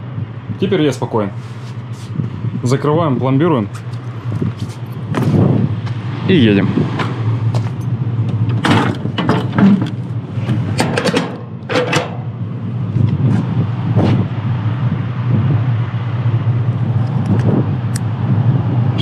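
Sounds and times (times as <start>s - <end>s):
low engine hum: 0.0s - 19.0s
metal locking bars clanking: 8.4s - 12.4s.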